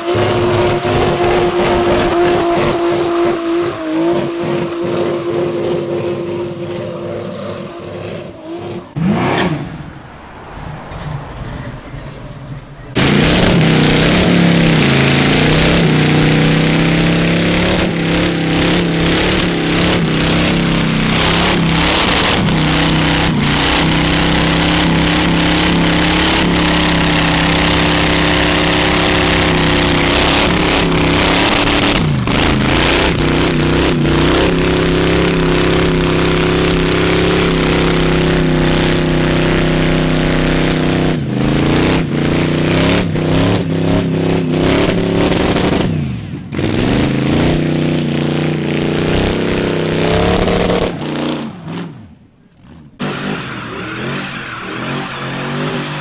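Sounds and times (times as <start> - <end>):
engine at high revs: 0.0 - 56.0
tyres spinning on asphalt: 0.0 - 56.0.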